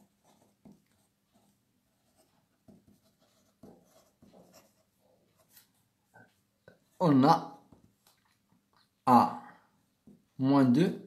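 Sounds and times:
pen nib scratching on paper: 0.0s - 5.8s.

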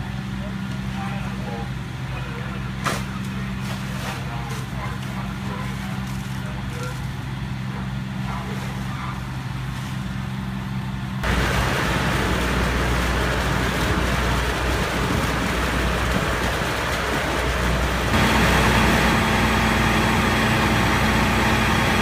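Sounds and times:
low engine drone: 0.0s - 22.0s
water rushing from a hose: 11.2s - 22.0s.

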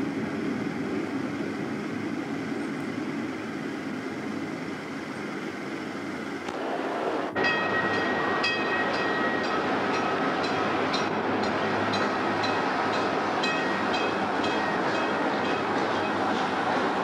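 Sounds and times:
train rumbling on a viaduct: 0.0s - 17.0s.

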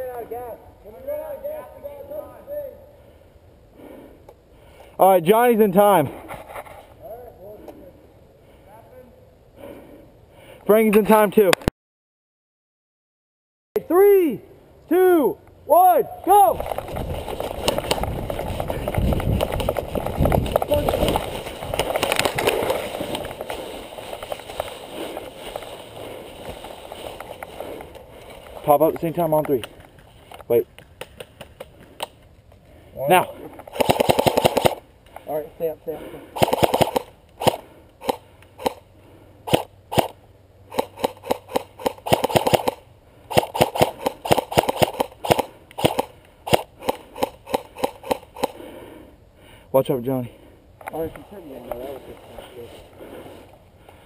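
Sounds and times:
airsoft guns firing: 16.6s - 25.6s, 33.6s - 34.9s, 36.4s - 38.8s, 39.5s - 48.6s
footsteps crunching through dry leaves: 16.7s - 28.7s.

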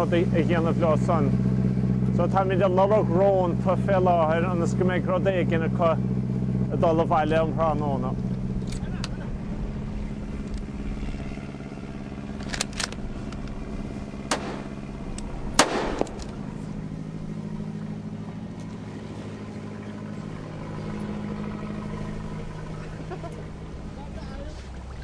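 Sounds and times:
boat engine running: 0.0s - 25.0s
loud sharp bang: 14.3s - 14.8s, 15.5s - 16.2s
sharp clicks: 14.3s - 16.4s.

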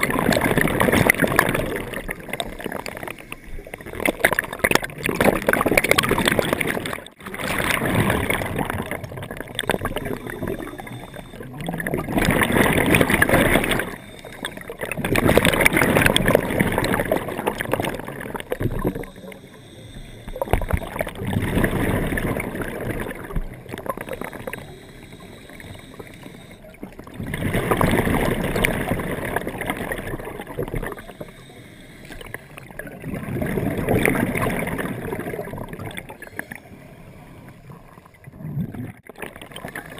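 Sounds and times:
exhaled bubbles underwater: 0.0s - 39.9s
diver inhaling through regulator: 9.6s - 17.7s, 18.5s - 21.2s, 23.8s - 26.9s, 30.8s - 32.8s, 36.0s - 37.7s.

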